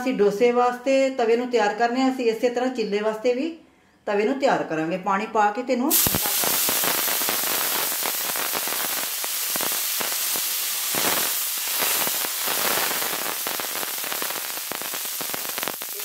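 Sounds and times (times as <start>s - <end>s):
water sizzling on hot iron pan: 5.9s - 16.0s.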